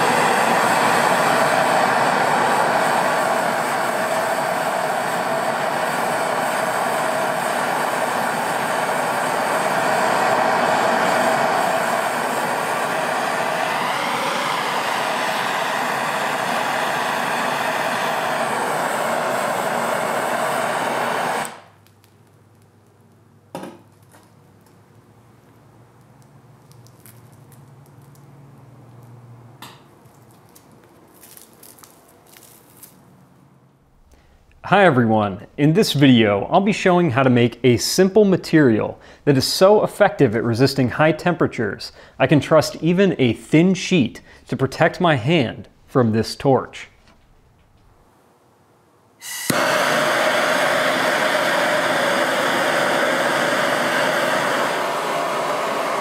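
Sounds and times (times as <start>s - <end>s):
low hum: 0.0s - 21.5s
propane torch hissing: 0.0s - 21.8s, 49.2s - 56.0s
brittle crust crackling and crunching: 21.8s - 23.2s, 26.0s - 28.3s, 30.0s - 33.1s
crust snapping: 26.0s - 28.3s.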